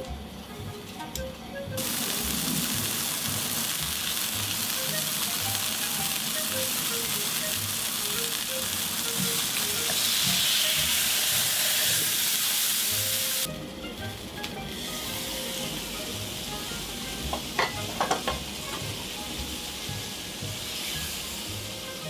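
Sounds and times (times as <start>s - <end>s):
patty sizzling on a griddle: 1.8s - 13.5s, 14.6s - 22.0s.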